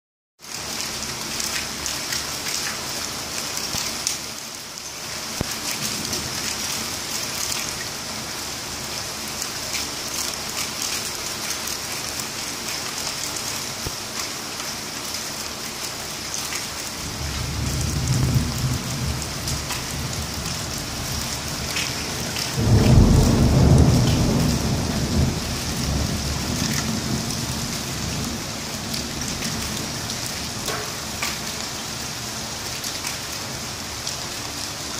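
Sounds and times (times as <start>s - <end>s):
heavy rain falling: 0.4s - 34.9s
thunder rumbling: 17.0s - 30.3s
loud thunderclap: 17.2s - 20.3s, 22.5s - 28.4s.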